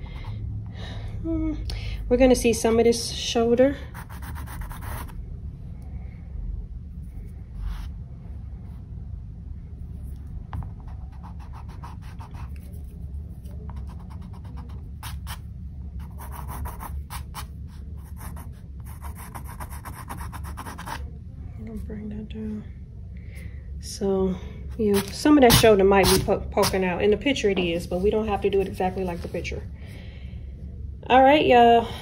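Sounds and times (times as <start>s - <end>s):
steady low hum: 0.0s - 32.0s
pencil scratching on canvas: 3.9s - 5.1s, 10.6s - 12.8s, 13.7s - 15.4s, 16.0s - 21.0s.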